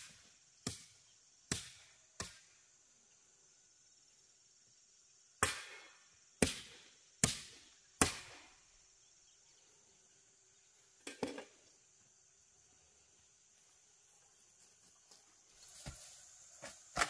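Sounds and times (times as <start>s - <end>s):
hoe chopping into soil: 5.4s - 8.6s, 16.6s - 17.0s.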